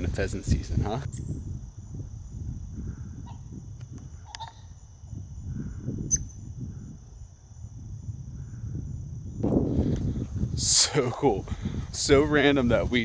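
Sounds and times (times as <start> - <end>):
high insect trill: 0.0 - 13.0
pheasants calling: 3.1 - 3.5, 4.2 - 4.8.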